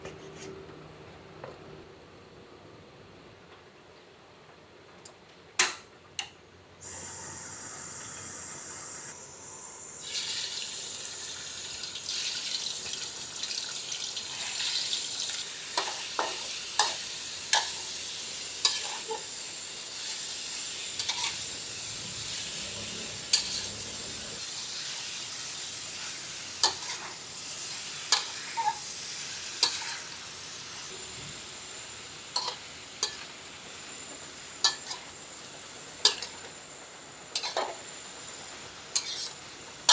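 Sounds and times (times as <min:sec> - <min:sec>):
gas burner hiss: 0:06.8 - 0:39.9
meat sizzling in oil: 0:06.8 - 0:39.9
metal spatula scraping a wok: 0:18.6 - 0:19.2, 0:20.9 - 0:21.5, 0:22.3 - 0:24.2, 0:26.0 - 0:28.9, 0:29.6 - 0:30.2, 0:37.3 - 0:37.8, 0:38.9 - 0:39.9.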